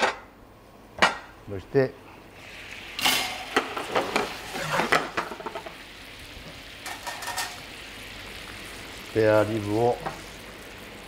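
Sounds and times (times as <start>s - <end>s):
sauce bubbling and sizzling: 2.3s - 11.0s
utensil clatter and scraping: 3.0s - 5.7s, 6.8s - 7.6s.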